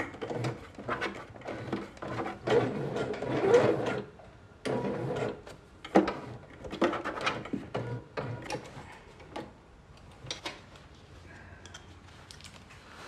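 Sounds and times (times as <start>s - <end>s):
sewing machine stitching: 0.0s - 8.7s.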